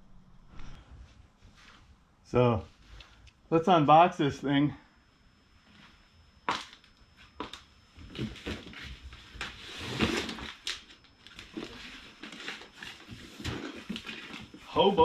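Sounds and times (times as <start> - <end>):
cardboard rustling and scraping: 7.4 - 15.0.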